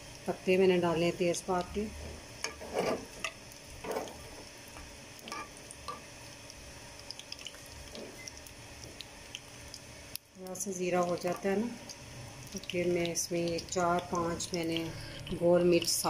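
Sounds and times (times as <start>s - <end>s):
seeds sizzling in hot oil: 0.0s - 16.0s
metal spoon scraping a pan: 2.4s - 4.4s, 5.2s - 6.1s.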